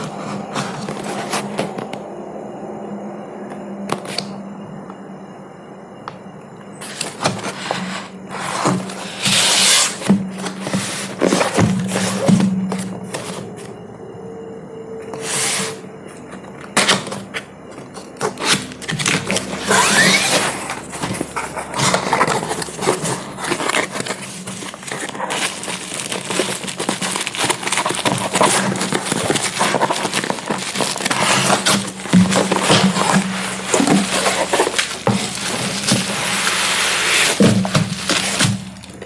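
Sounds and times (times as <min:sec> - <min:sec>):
cardboard crackling and tearing: 0:06.8 - 0:13.7, 0:16.6 - 0:39.0.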